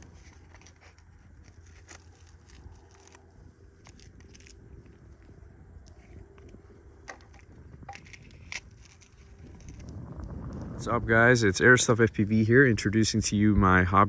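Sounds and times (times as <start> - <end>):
small clicks and scrapes: 0.0 - 10.7
steady low rumble: 0.0 - 14.0.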